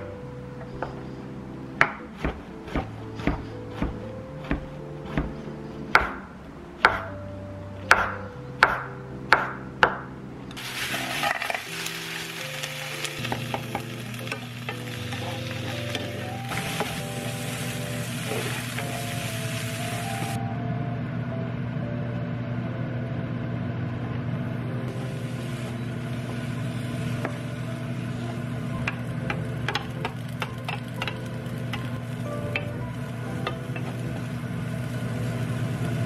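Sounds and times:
background music: 0.0 - 36.0
knife chopping on cutting board: 1.8 - 5.4, 6.0 - 6.2, 6.9 - 7.1, 7.9 - 10.0
food sizzling in a hot pan: 10.6 - 20.4, 24.9 - 36.0.

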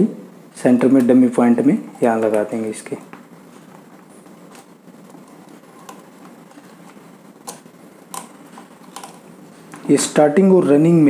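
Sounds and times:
quiet room hiss: 0.0 - 11.0
faint clicks and taps: 2.2 - 9.9.

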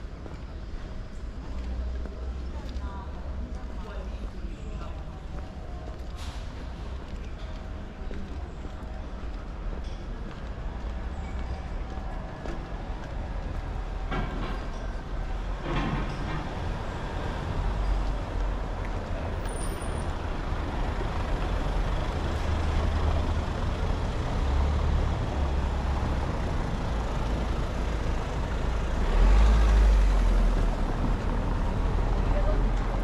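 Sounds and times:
street noise: 0.0 - 33.0
vehicle engine rumbling: 4.6 - 33.0.

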